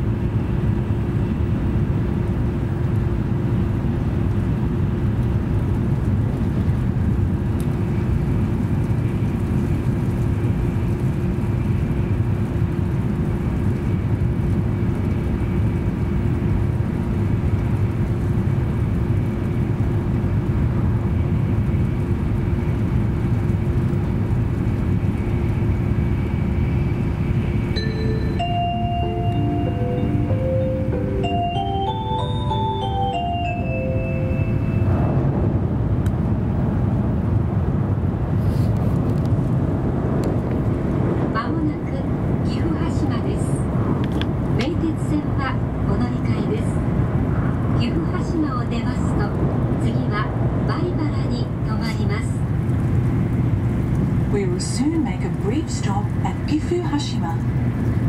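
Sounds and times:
steady low hum: 0.0 - 58.0
train running rumble: 0.0 - 58.0
bell-like announcement chime: 27.8 - 35.0.

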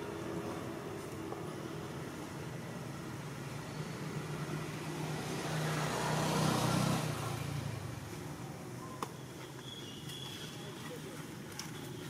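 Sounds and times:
motor vehicle passing: 4.0 - 8.1.

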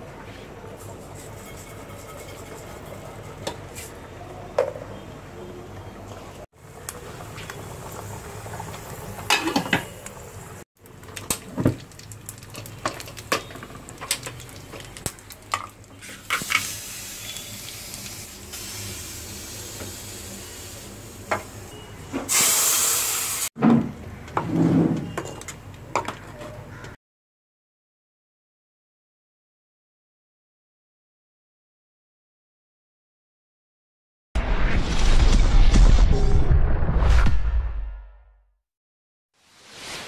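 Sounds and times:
food sizzling in hot oil: 6.6 - 21.7, 22.3 - 23.5.

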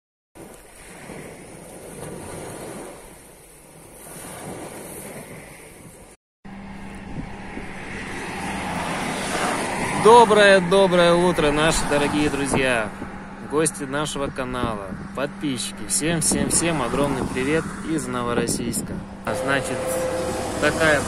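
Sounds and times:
waves breaking on pebble beach: 0.4 - 6.2
moving car road noise: 6.5 - 21.0.

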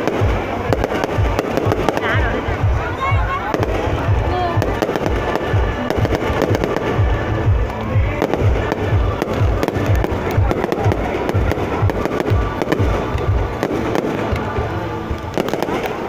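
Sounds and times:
fireworks booming and crackling: 0.0 - 16.0
music playing: 0.0 - 16.0.

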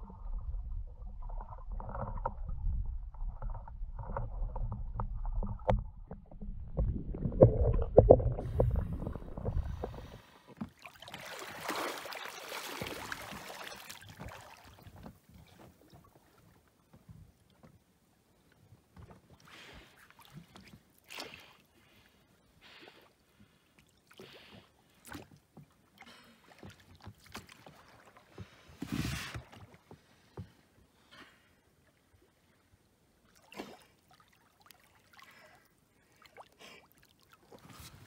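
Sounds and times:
underwater rumble and bubbling: 0.0 - 10.6
water splashing and sloshing: 0.0 - 38.0.

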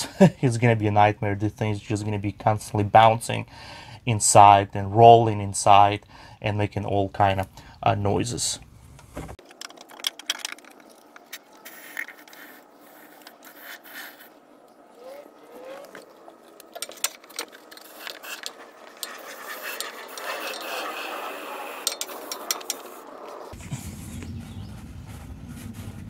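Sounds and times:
aerosol can clicks and scrapes: 9.4 - 14.4, 15.8 - 23.0
spray foam sputtering hiss: 11.6 - 14.3, 17.8 - 25.2.

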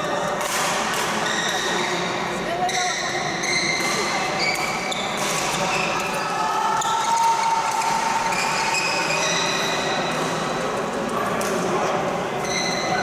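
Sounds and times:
racket hitting shuttlecock: 0.4 - 1.8
shoes squeaking on court floor: 2.6 - 6.2.

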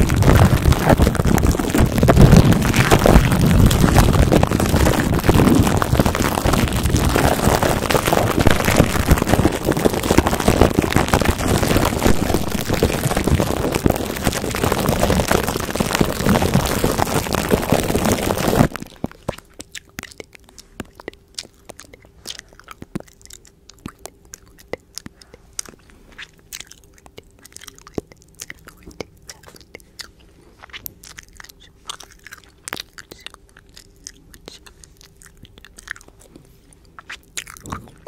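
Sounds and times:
plastic wrap crinkling: 0.0 - 21.0.

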